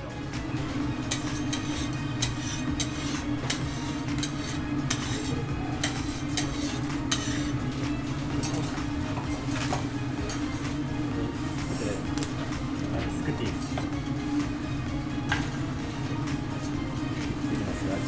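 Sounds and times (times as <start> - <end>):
metal spatulas on steel griddle: 1.0 - 7.6.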